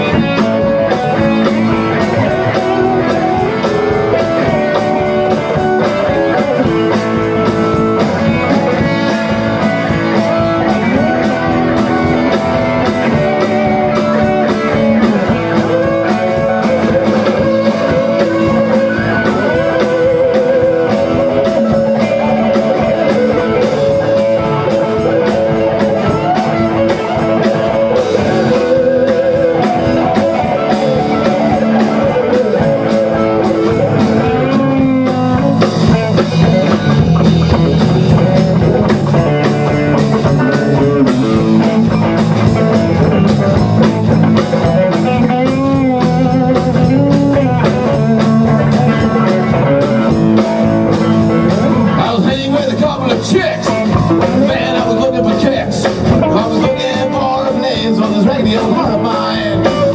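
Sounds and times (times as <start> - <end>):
drum kit beat: 0.0 - 59.9
electric bass guitar: 0.0 - 59.9
electric guitars: 0.0 - 59.9.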